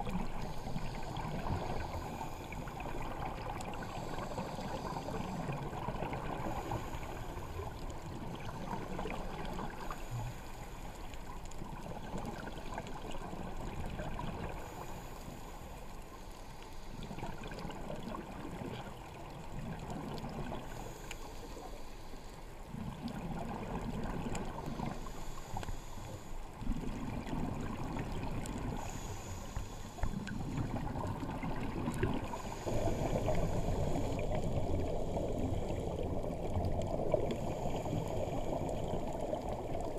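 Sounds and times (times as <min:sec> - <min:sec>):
muffled water rush: 0:00.0 - 0:39.9
regulator breathing underwater: 0:00.4 - 0:03.0, 0:03.7 - 0:07.7, 0:20.7 - 0:22.4, 0:24.6 - 0:26.8, 0:28.5 - 0:31.1, 0:32.0 - 0:35.9, 0:37.1 - 0:39.2
faint hiss: 0:24.3 - 0:39.8
low bubbling bursts: 0:30.0 - 0:39.9.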